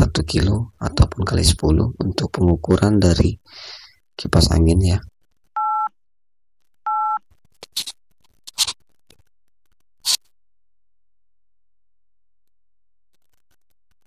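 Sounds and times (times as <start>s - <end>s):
telephone keypad beeps: 5.6s - 5.9s, 6.9s - 7.2s.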